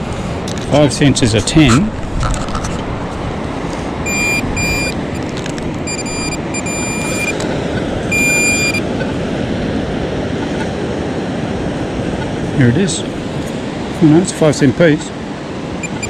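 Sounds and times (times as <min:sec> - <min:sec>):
metal detector beeping: 0:04.0 - 0:07.4, 0:08.1 - 0:08.9, 0:15.8 - 0:16.0.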